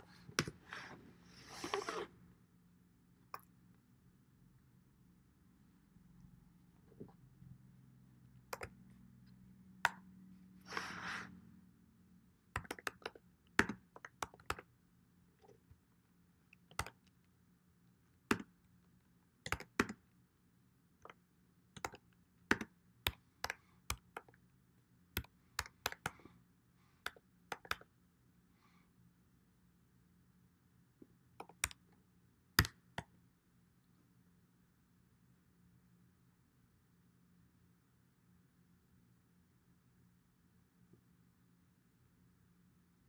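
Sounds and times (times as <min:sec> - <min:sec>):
computer keyboard typing: 0:12.6 - 0:14.6, 0:19.5 - 0:20.0, 0:21.8 - 0:24.3, 0:27.1 - 0:27.9, 0:31.4 - 0:31.8.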